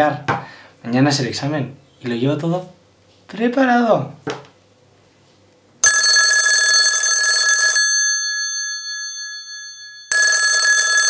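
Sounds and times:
bell ringing: 0:05.8 - 0:11.0.

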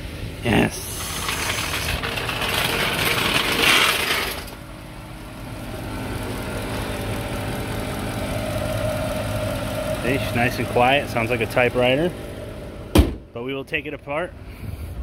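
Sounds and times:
car engine idling with ticking: 0:04.7 - 0:12.8.

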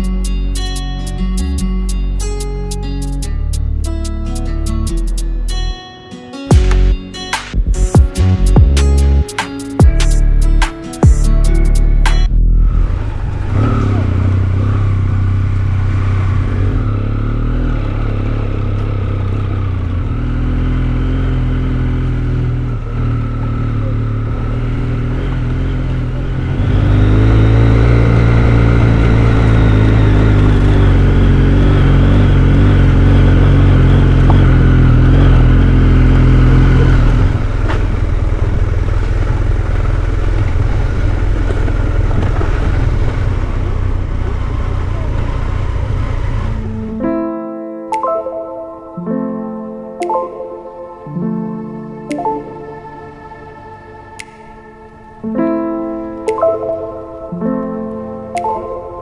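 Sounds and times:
motorcycle engine running: 0:13.2 - 0:47.1.

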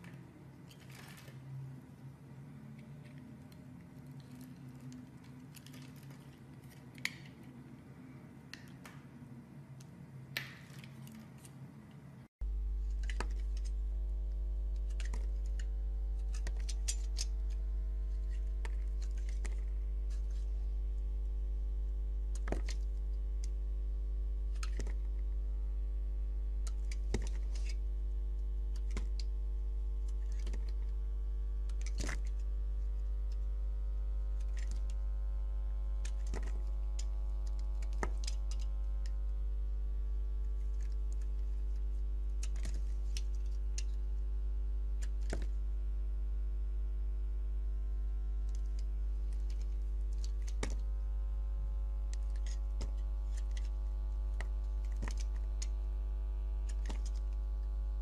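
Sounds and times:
steady low hum: 0:11.5 - 0:58.0
knife cutting soap: 0:12.8 - 0:21.2, 0:22.3 - 0:23.6, 0:26.6 - 0:29.4, 0:30.0 - 0:33.5, 0:35.7 - 0:44.0, 0:52.1 - 0:55.8, 0:56.5 - 0:57.4.

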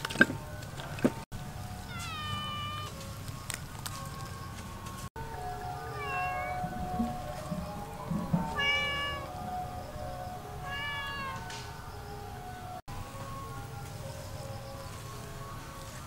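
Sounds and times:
soft background music: 0:00.0 - 0:16.0
cat meowing: 0:01.9 - 0:03.0, 0:05.9 - 0:06.6, 0:08.6 - 0:09.3, 0:10.6 - 0:11.5.

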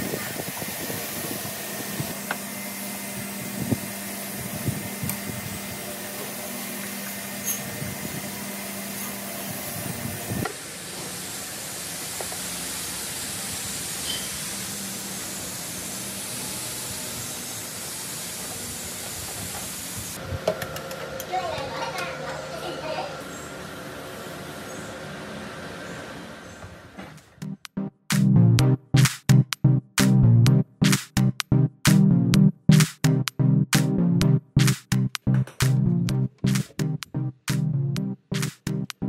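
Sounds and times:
low hum: 0:27.4 - 0:39.0.

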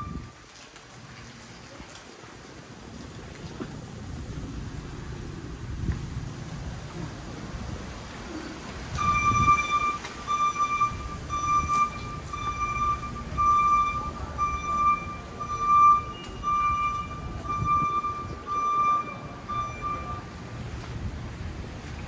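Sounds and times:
low traffic rumble: 0:00.0 - 0:22.0
electronic warning beeper: 0:09.0 - 0:20.3.

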